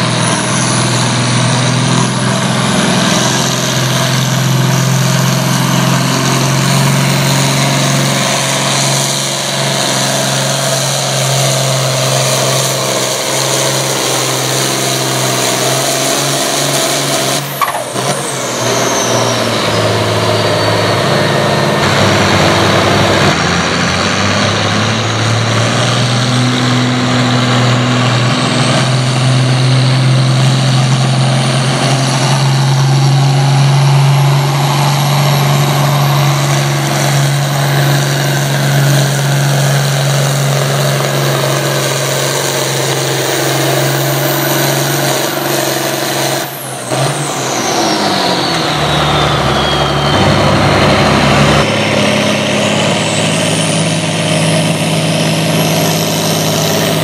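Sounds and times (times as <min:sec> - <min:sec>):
tractor diesel engine under load: 0:00.0 - 0:57.0
high whine: 0:26.5 - 0:57.0.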